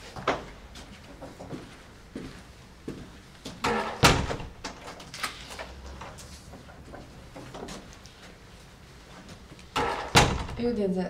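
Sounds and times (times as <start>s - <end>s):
door banging shut: 3.6s - 5.1s, 9.8s - 10.7s.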